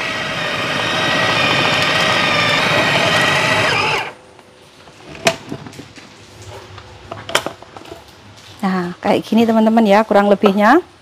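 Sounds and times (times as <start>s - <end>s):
mini blender motor grinding: 0.0s - 4.2s.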